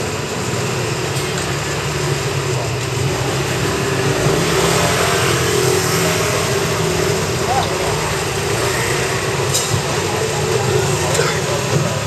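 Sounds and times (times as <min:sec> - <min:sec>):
loud street din: 0:00.0 - 0:12.0.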